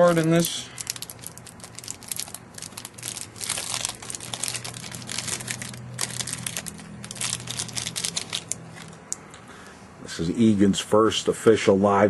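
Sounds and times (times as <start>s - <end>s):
wrapper crinkling and tearing: 0.0s - 9.1s.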